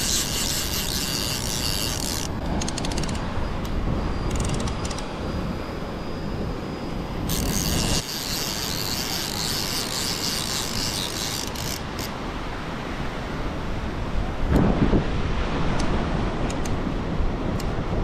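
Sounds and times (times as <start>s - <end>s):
high rasping hiss: 0.0s - 2.4s, 7.3s - 12.2s
wind buffeting microphone: 0.0s - 18.0s
surf washing: 8.5s - 18.0s.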